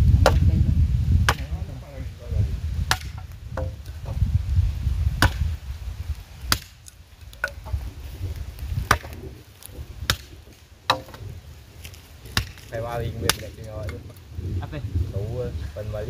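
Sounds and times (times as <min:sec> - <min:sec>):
blade chopping into wood: 0:00.2 - 0:00.5, 0:01.2 - 0:01.6, 0:02.9 - 0:04.2, 0:05.2 - 0:05.5, 0:06.5 - 0:07.6, 0:08.8 - 0:09.2, 0:10.1 - 0:11.2, 0:12.3 - 0:14.0.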